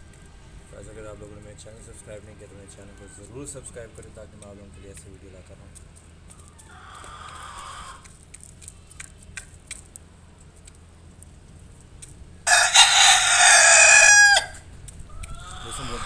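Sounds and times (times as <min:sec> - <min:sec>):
rooster crowing: 0:12.5 - 0:14.7.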